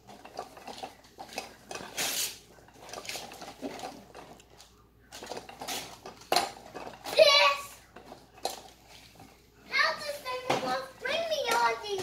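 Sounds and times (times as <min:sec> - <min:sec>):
wrapping paper tearing: 0:01.8 - 0:02.4.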